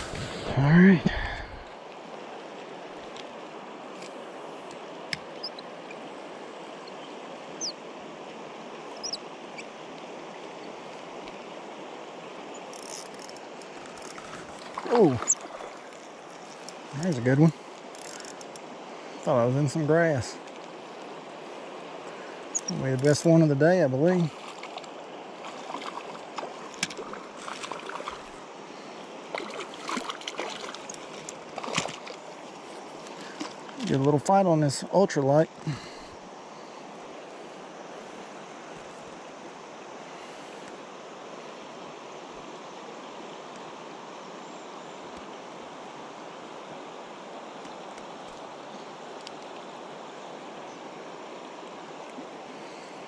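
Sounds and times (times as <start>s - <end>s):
river flowing: 0.0s - 53.0s
high bird chirps: 22.5s - 22.8s.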